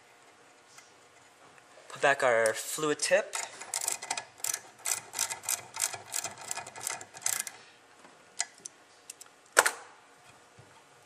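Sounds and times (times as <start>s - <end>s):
ratchet clicking: 3.3s - 7.6s.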